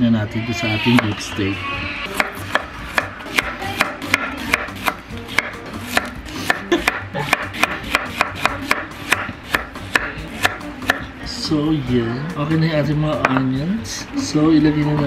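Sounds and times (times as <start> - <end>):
knife tapping on wooden board: 2.2 - 11.0, 13.2 - 13.5.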